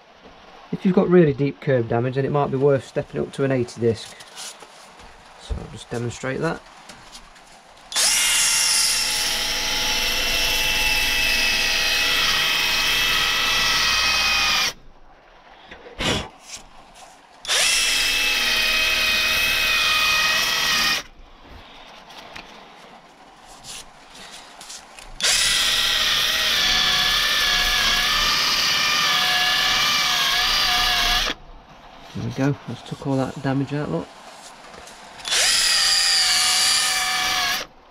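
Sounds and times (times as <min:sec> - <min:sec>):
drill motor whining: 0:07.9 - 0:14.8, 0:17.5 - 0:21.1, 0:25.2 - 0:31.4, 0:35.2 - 0:37.7.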